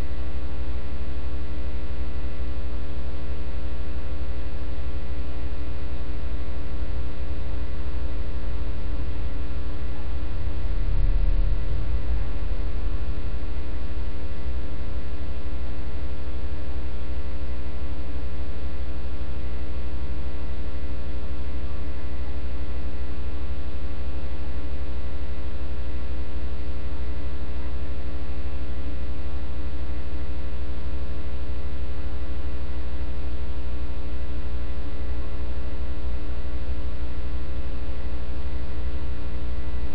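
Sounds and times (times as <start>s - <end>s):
electrical mains hum: 0.0s - 39.9s
deep rumble: 7.9s - 16.6s.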